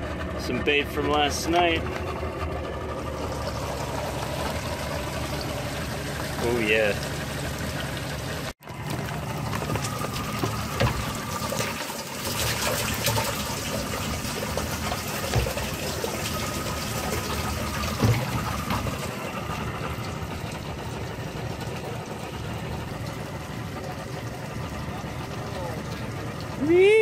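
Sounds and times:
water pouring and sloshing: 0:00.0 - 0:27.0
bucket knocking: 0:08.8 - 0:20.0.

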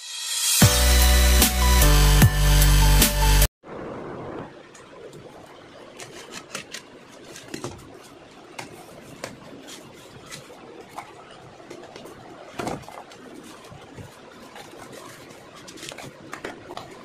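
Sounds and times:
cardboard and tape crackling: 0:06.0 - 0:17.0.

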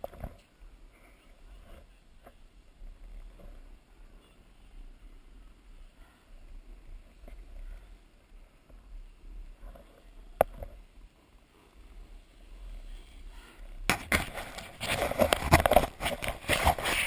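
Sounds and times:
edges scraping over hard snow: 0:14.1 - 0:17.0.

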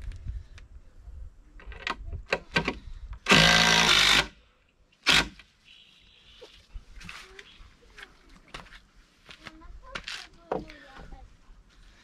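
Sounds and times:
drill driving screw into timber: 0:02.5 - 0:04.4, 0:05.0 - 0:05.4.

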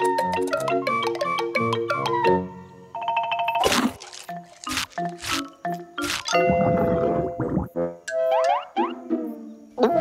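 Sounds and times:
cartoon music: 0:06.0 - 0:10.0.

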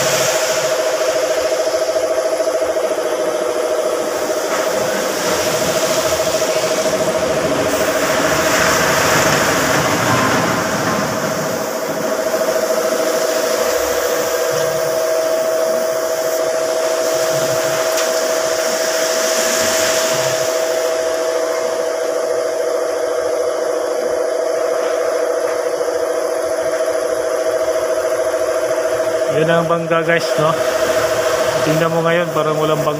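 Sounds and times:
spray gun hissing: 0:00.0 - 0:09.2, 0:11.3 - 0:22.0
air compressor humming: 0:00.0 - 0:32.9.

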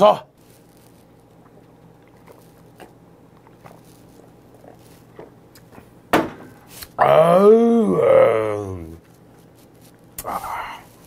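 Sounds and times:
man exclaiming aah: 0:07.0 - 0:09.0.

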